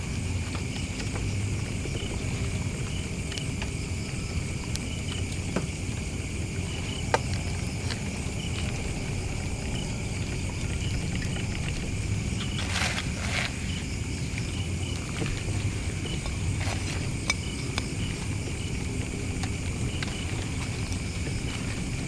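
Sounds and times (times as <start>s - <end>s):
insects droning: 0.0s - 22.0s
low rumble: 4.0s - 22.0s.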